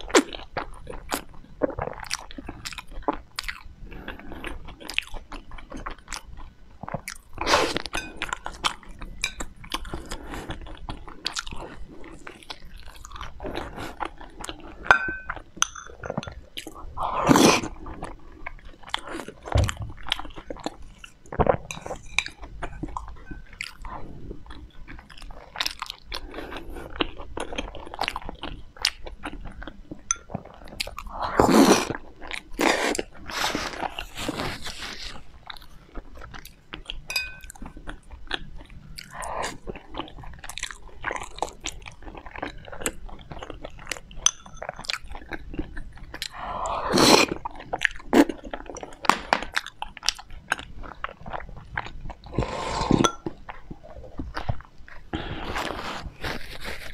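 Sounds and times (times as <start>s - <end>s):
person chewing crunchy food: 0.0s - 56.9s.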